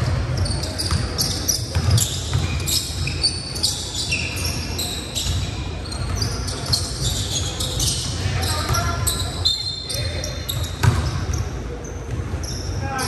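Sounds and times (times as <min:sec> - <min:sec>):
sneakers squeaking: 0:00.0 - 0:13.0
basketball bouncing: 0:00.9 - 0:03.0, 0:10.6 - 0:11.4.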